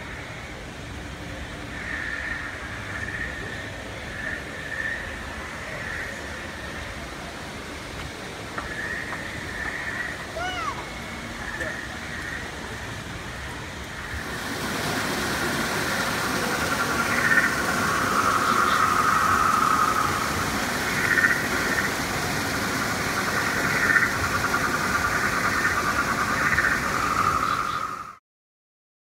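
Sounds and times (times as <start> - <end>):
chorus of jungle creature calls: 14.5 - 28.2.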